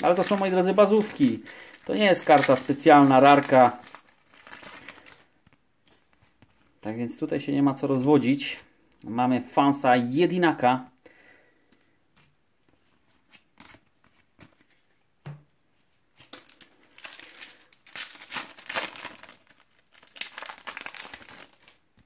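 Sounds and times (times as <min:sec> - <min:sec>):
foil packet crinkling and tearing: 0:00.0 - 0:05.4, 0:16.2 - 0:22.0.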